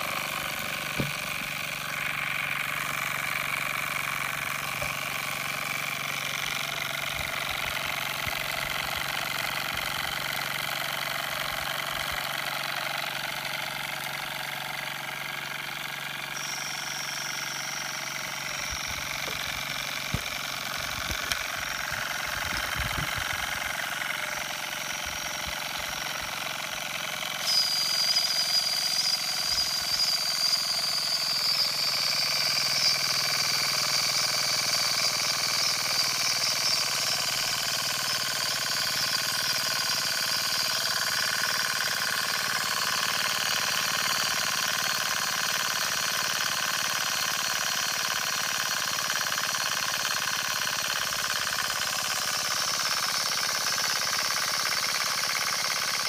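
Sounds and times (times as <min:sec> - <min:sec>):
toy steam engine hissing: 0:00.0 - 0:56.0
high whistling steam hiss: 0:27.4 - 0:33.3.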